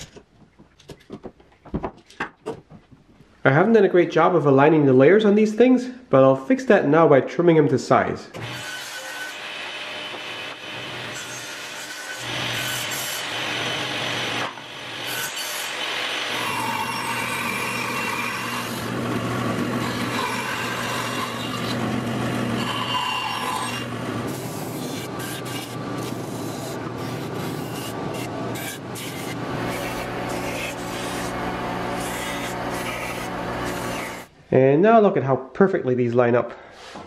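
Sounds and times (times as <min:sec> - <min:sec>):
bandsaw cutting: 0:08.4 - 0:34.3
table saw cutting plywood: 0:08.4 - 0:34.3
belt sander grinding: 0:12.0 - 0:34.3
steady motor hum: 0:23.8 - 0:34.3.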